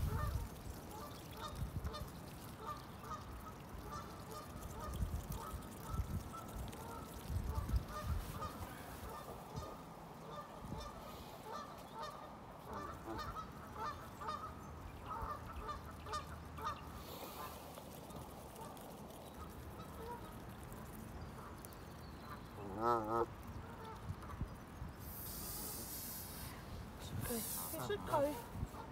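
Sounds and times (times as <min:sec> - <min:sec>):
geese calling: 0:00.0 - 0:17.6
goose honking: 0:10.3 - 0:17.5, 0:22.6 - 0:24.0.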